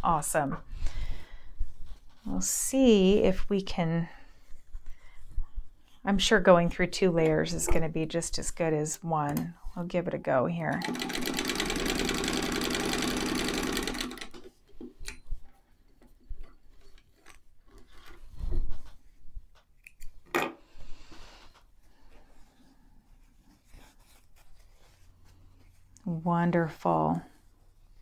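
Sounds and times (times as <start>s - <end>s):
sewing machine stitching: 10.7s - 14.5s
fabric rustle: 21.8s - 26.2s.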